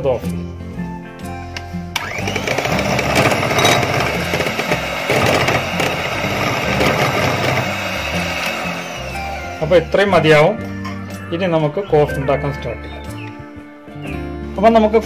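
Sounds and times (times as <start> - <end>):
electric hand mixer whirring: 2.0 - 10.3.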